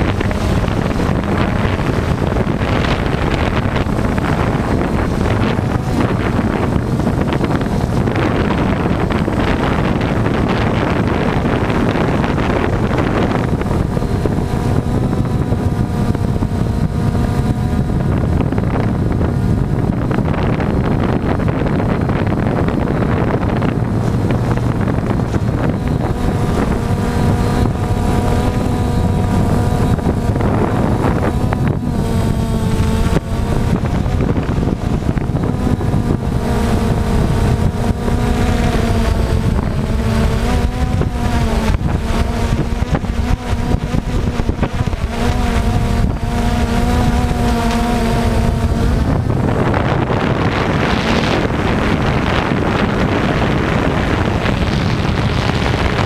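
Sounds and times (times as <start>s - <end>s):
drone propellers whirring: 0.0s - 56.0s
rushing noise near ground: 0.0s - 56.0s.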